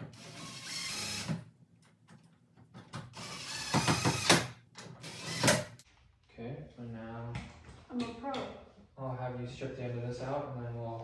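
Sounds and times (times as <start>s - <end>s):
cordless drill driving screws: 0.1s - 1.4s, 3.2s - 5.8s.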